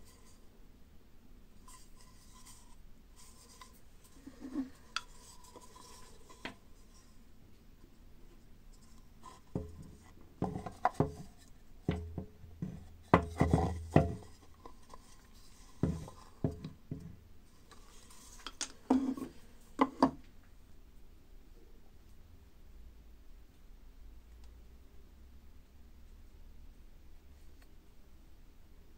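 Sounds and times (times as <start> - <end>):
wooden cups knocking and rubbing: 1.7 - 7.0, 8.8 - 20.2.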